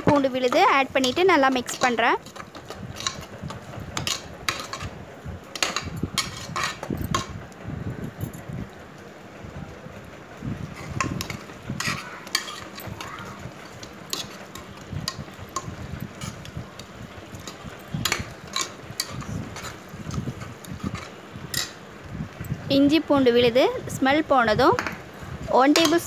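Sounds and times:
metal spoon scraping a pot: 0.0 - 4.9, 5.5 - 7.3, 10.7 - 13.0, 13.6 - 16.5, 17.4 - 21.8
paste frying in oil: 0.0 - 7.4, 10.3 - 22.4.

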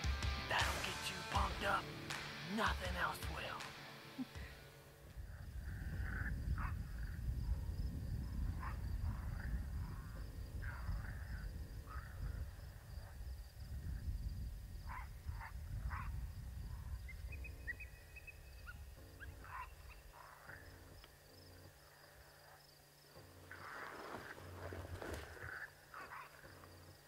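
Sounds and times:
wind rumbling on microphone: 5.1 - 20.0.

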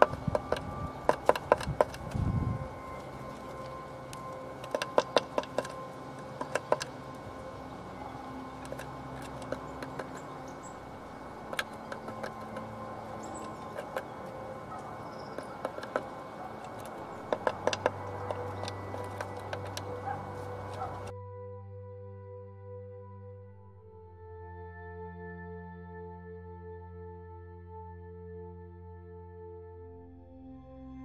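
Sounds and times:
birds tapping and scratching on wood: 0.0 - 21.1.

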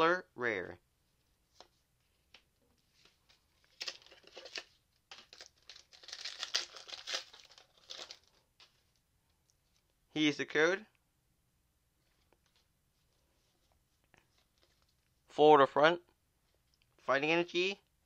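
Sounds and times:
foil wrapper crinkling and tearing: 3.6 - 8.4.

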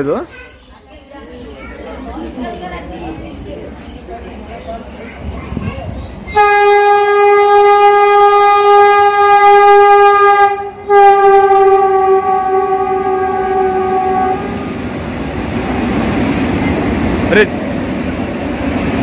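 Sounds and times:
train wheels rumbling on rail: 2.7 - 19.0
train horn blasts: 6.3 - 14.8.

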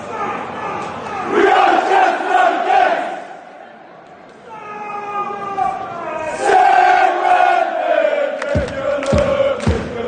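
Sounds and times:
football supporters chanting: 1.2 - 3.4, 6.3 - 10.0
low thumps beat: 8.5 - 10.0.

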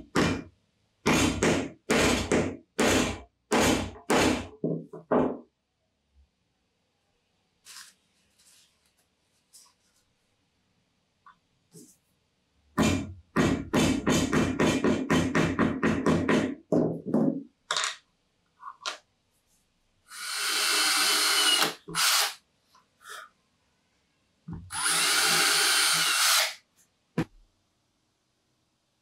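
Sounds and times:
cordless drill in wood: 20.1 - 22.4, 24.7 - 26.6.

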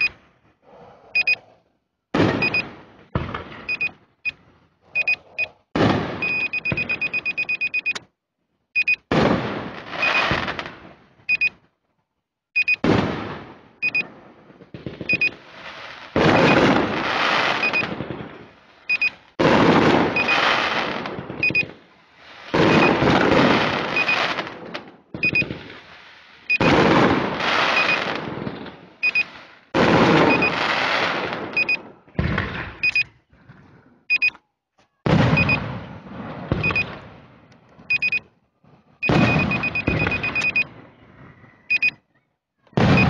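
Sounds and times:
short high beeps: 1.2 - 1.4, 2.4 - 2.6, 3.7 - 4.4, 5.0 - 5.6, 6.2 - 8.0, 8.8 - 9.1, 10.0 - 10.3, 11.3 - 11.6, 12.6 - 12.8, 13.8 - 14.1, 15.1 - 15.4, 17.6 - 17.9, 18.9 - 19.2, 20.2 - 20.4, 21.4 - 21.7, 22.6 - 23.0, 23.9 - 24.3, 25.2 - 25.5, 27.7 - 28.1, 29.0 - 29.3, 30.3 - 30.6, 31.6 - 31.8, 32.8 - 33.1, 34.1 - 34.4, 35.4 - 35.6, 36.6 - 36.9, 37.9 - 38.3, 39.0 - 40.7, 41.7 - 42.0
fireworks bangs with crackle: 2.1 - 4.0, 5.8 - 7.1, 9.1 - 11.3, 12.7 - 32.9, 35.0 - 37.9, 39.0 - 40.9, 42.7 - 43.0.

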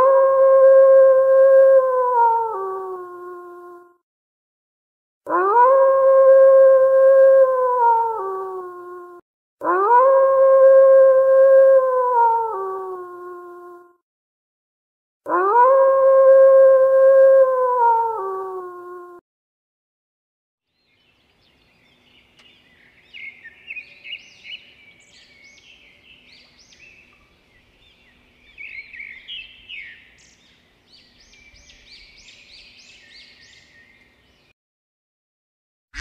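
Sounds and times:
howl falling in pitch: 0.0 - 3.9, 5.3 - 13.9, 15.3 - 19.2
songbird chirping and trilling: 20.7 - 34.6.

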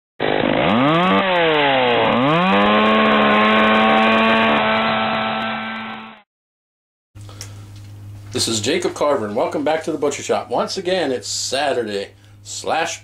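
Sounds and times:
chainsaw engine revving: 0.2 - 6.2.

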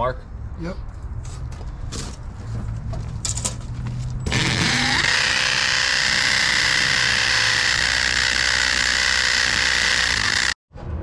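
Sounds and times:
drill boring into concrete: 4.3 - 10.6.

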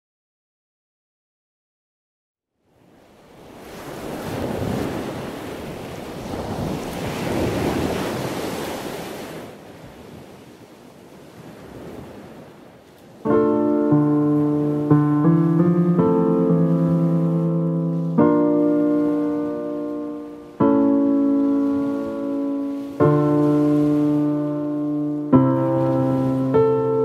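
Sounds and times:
surf breaking on beach: 2.8 - 27.0
strong wind: 3.4 - 13.4
piano chords: 13.3 - 27.0.

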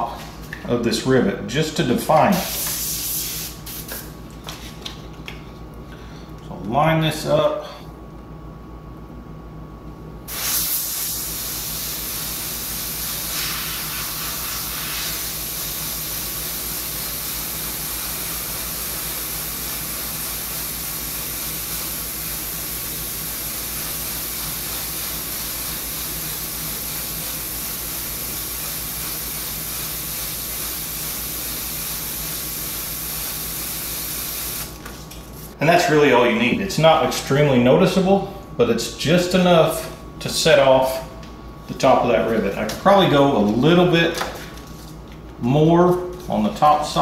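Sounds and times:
airbrush hissing: 2.4 - 4.0, 10.3 - 34.8.

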